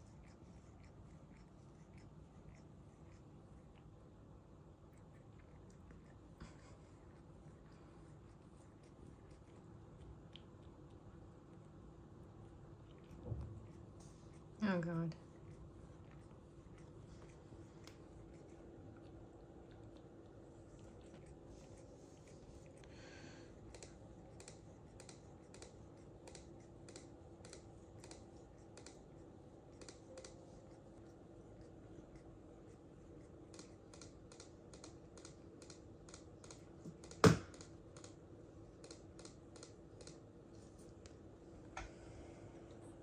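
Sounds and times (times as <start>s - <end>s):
cat licking its fur: 0.0s - 37.2s
loud sharp knock: 37.2s - 37.5s.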